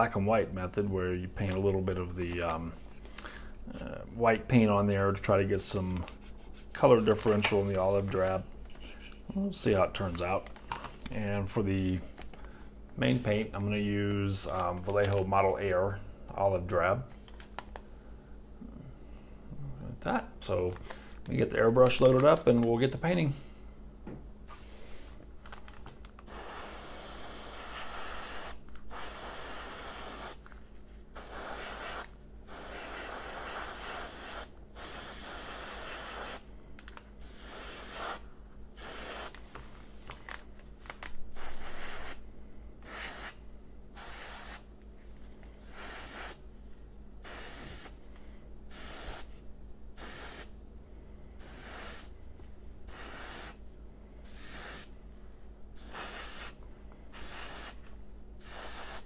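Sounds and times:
steady low hum: 0.0s - 59.0s
airbrush spraying hiss: 26.3s - 30.4s, 31.2s - 36.4s, 37.2s - 38.2s, 38.8s - 39.3s, 41.3s - 42.2s, 42.8s - 43.4s, 44.0s - 44.7s, 45.6s - 46.4s, 47.2s - 48.0s, 48.7s - 49.3s, 50.0s - 50.5s, 51.4s - 52.1s, 52.9s - 53.6s, 54.2s - 54.9s, 55.8s - 57.8s, 58.4s - 59.0s.

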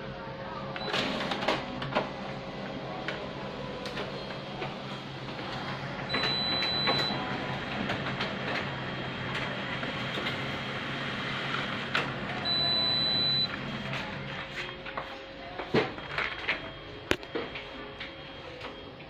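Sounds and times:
copier mechanical hum: 0.0s - 19.0s
high steady beep: 6.1s - 7.2s, 12.4s - 13.5s.

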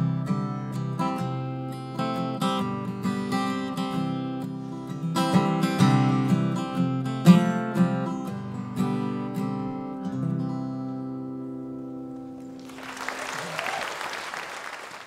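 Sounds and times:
acoustic guitar strumming: 0.0s - 12.6s
audience applause: 12.6s - 15.0s.

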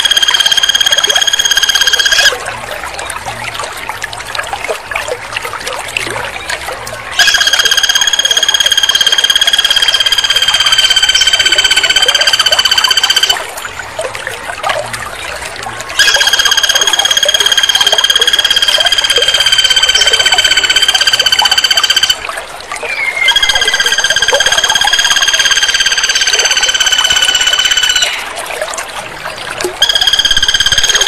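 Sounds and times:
woodpecker rattling trills: 0.0s - 2.3s, 7.2s - 13.4s, 16.0s - 22.2s, 22.9s - 28.3s, 29.8s - 31.0s.

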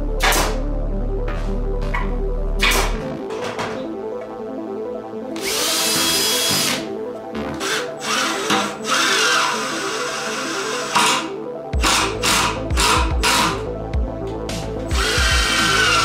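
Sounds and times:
background music: 0.0s - 16.0s
cordless drill whining: 5.4s - 6.8s, 7.6s - 13.6s, 14.9s - 16.0s.

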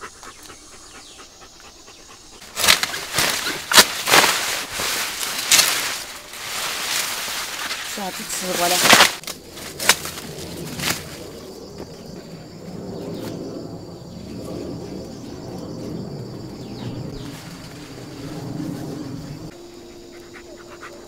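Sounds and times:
stalks snapping: 2.4s - 11.2s
maize leaves rustling: 2.4s - 20.1s.

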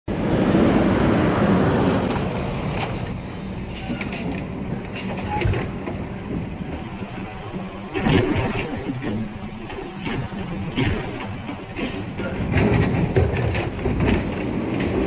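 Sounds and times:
high brake squeal: 1.4s - 5.5s
garbage truck engine humming: 2.4s - 15.0s
clunks: 3.8s - 15.0s.

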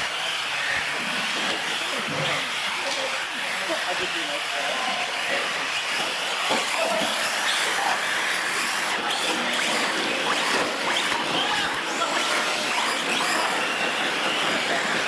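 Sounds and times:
electric motor whines: 0.0s - 15.0s
steady background noise: 0.0s - 15.0s
tyre noise on concrete: 5.3s - 15.0s.

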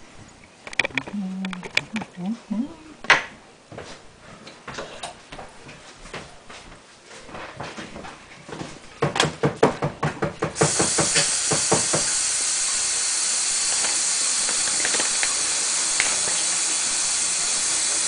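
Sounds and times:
tap water running: 10.4s - 18.0s.

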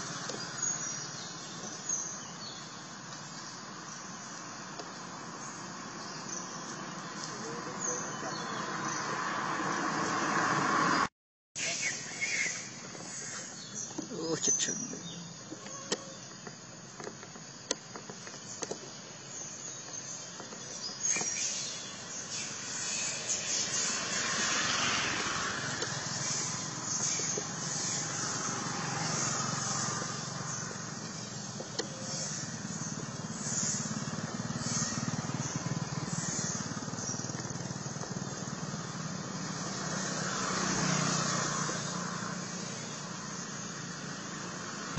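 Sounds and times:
vehicle engine running: 23.8s - 44.9s.

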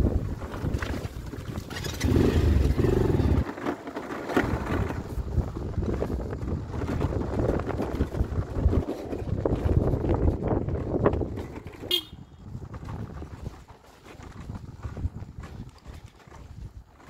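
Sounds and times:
wind on microphone: 0.0s - 3.5s, 4.3s - 17.0s
motorcycle engine running: 4.6s - 16.0s.

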